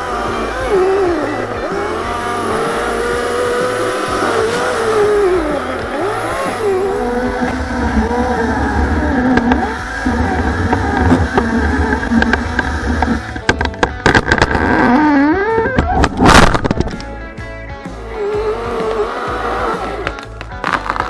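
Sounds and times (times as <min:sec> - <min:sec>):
deep low rumble: 0:00.0 - 0:13.6
chainsaw cutting wood: 0:00.0 - 0:17.0, 0:17.9 - 0:21.0.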